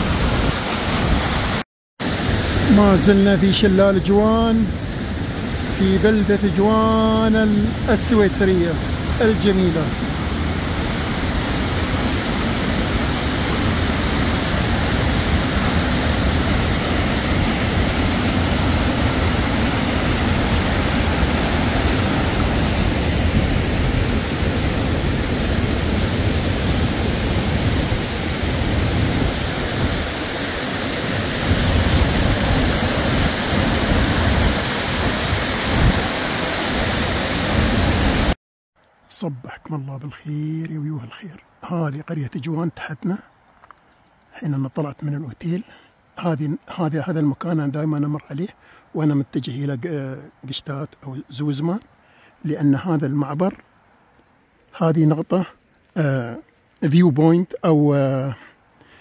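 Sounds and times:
waterfall rushing: 0.0 - 38.4.

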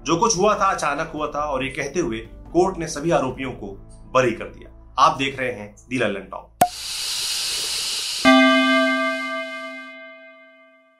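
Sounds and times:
bright bell-like note: 8.3 - 10.9.

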